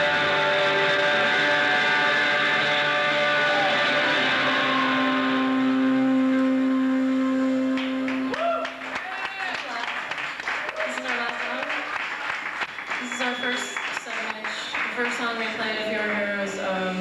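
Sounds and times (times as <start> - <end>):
distorted electric guitar drone: 0.0 - 8.3
low held tone: 0.0 - 8.6
guitar feedback: 0.0 - 8.9.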